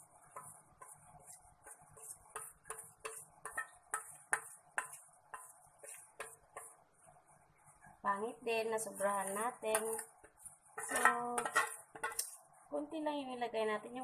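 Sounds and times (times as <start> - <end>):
utensil scraping a steel bowl: 0.2 - 6.8, 8.7 - 12.4.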